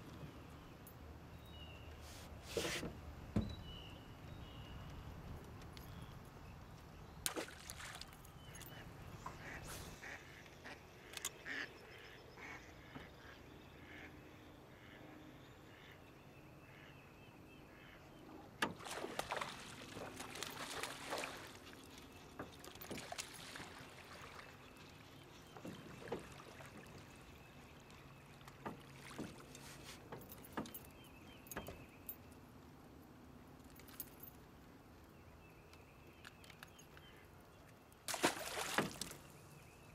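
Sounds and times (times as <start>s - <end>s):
knocks and clicks of rod and hull: 2.6s - 3.7s, 22.3s - 23.2s, 25.5s - 27.0s, 28.4s - 31.9s
water splashing: 7.3s - 8.7s, 18.7s - 21.8s, 22.5s - 27.4s, 38.1s - 39.4s.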